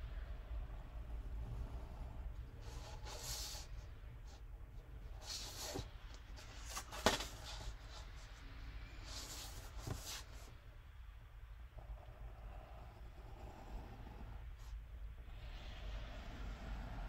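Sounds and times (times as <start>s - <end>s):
paper shifting: 5.2s - 8.2s.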